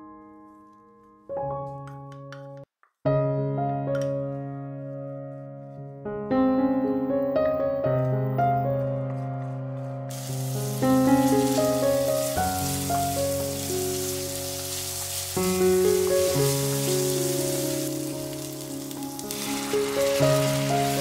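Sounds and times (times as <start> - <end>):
background piano music: 0.0 - 21.0
vegetables sizzling in oil: 10.1 - 21.0.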